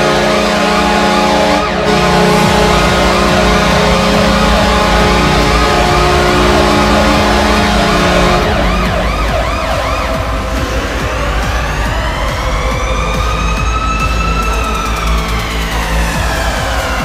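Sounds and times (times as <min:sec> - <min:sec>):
goal horn blasting low chord: 0:00.0 - 0:10.5
music: 0:00.0 - 0:17.0
siren-like whoops: 0:00.0 - 0:17.0.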